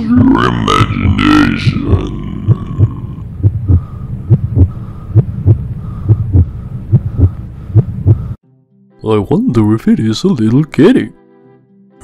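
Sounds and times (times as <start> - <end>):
heartbeat thuds: 0.0 - 8.4.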